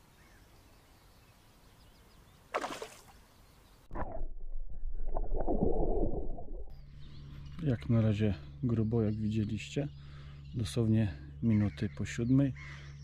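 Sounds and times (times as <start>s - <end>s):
water splash: 2.5s - 3.2s, 3.9s - 6.7s
muffled underwater churning: 3.9s - 6.8s.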